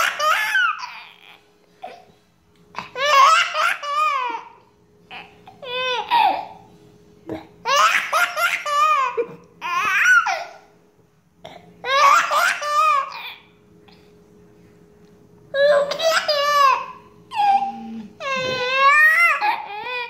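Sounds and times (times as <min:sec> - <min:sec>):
baby laughing: 0:00.0 - 0:01.4, 0:02.8 - 0:06.6, 0:07.6 - 0:10.5, 0:11.8 - 0:13.4, 0:15.6 - 0:20.0.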